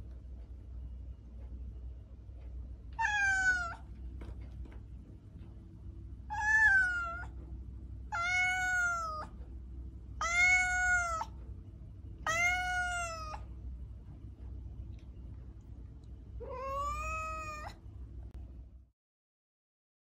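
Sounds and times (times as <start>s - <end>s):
cat meowing: 3.0s - 3.9s, 6.3s - 7.4s, 8.1s - 9.4s, 10.2s - 11.4s, 12.2s - 13.5s, 16.4s - 17.8s.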